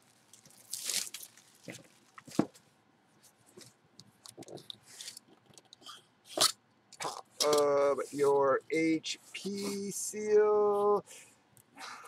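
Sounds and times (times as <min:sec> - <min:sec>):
plastic wrap rustling: 0:00.0 - 0:02.6.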